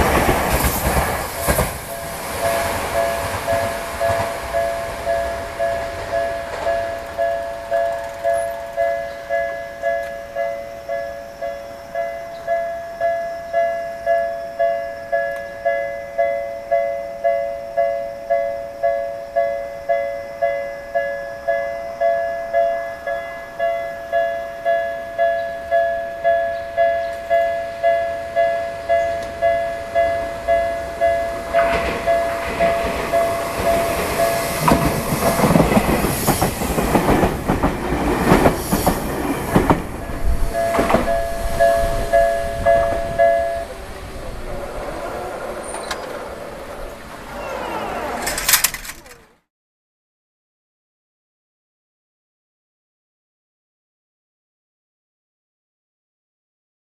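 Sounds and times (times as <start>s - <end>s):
train wheels rumbling and clattering: 0.0s - 14.4s, 24.6s - 49.2s.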